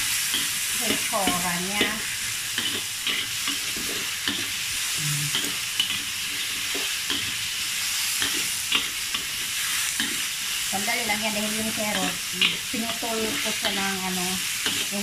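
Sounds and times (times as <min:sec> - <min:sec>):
food sizzling in oil: 0:00.0 - 0:15.0
metal spatula scraping wok: 0:11.4 - 0:15.0.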